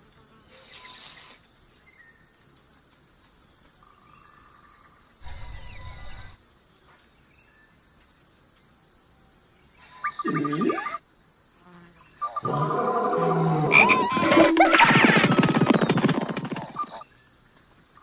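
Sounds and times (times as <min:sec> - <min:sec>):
high insect chirring: 0:09.8 - 0:17.1
wild animal calls: 0:10.0 - 0:11.0, 0:12.2 - 0:17.0.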